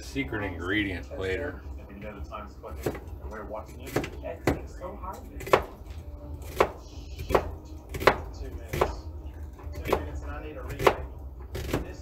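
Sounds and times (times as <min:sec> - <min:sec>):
knife chopping on cutting board: 0:02.8 - 0:03.1, 0:03.7 - 0:04.8, 0:05.4 - 0:12.0.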